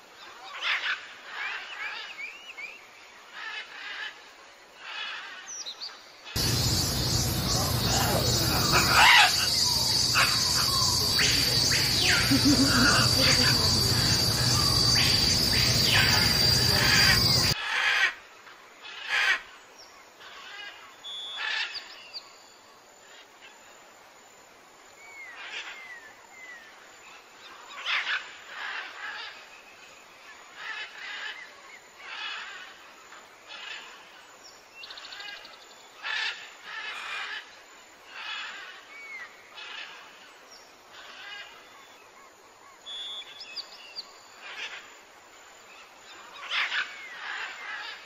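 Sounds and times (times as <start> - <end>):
dense insect chorus: 2.9 - 18.1, 18.8 - 48.0
bird calls and chirps: 4.8 - 17.6, 38.1 - 44.9.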